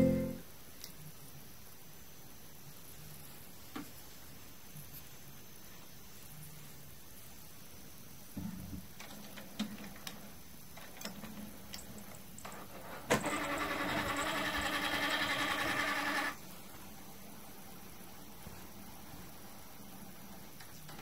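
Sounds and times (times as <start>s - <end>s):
printer motor whirring: 12.5s - 16.4s.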